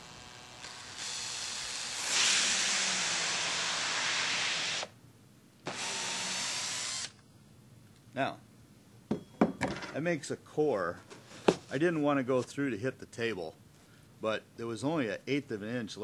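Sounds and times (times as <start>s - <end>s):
cordless drill cutting foam: 0.0s - 4.9s, 5.6s - 7.2s.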